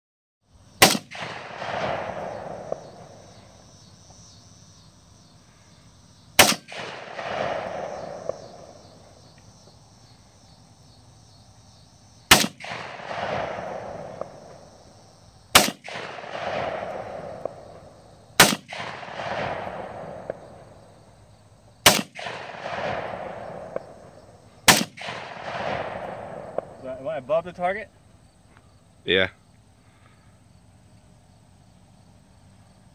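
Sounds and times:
pistol shots with echo: 0.8s - 3.5s, 6.4s - 9.2s, 12.3s - 14.7s, 15.5s - 20.7s, 21.8s - 26.9s.

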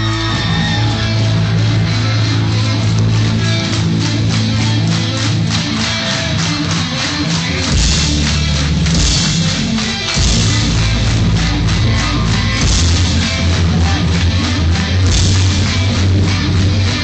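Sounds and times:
bass guitar: 0.0s - 17.0s
distorted electric guitars: 0.0s - 17.0s
fast steady drumbeat: 6.5s - 17.0s.

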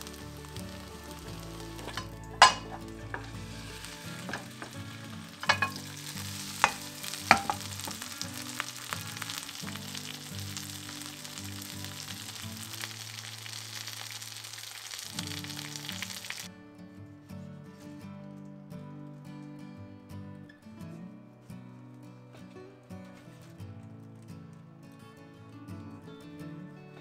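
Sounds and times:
food sizzling in a pan: 0.0s - 16.5s
utensil clinking against pan: 1.8s - 3.3s, 5.4s - 6.0s, 6.6s - 8.0s.

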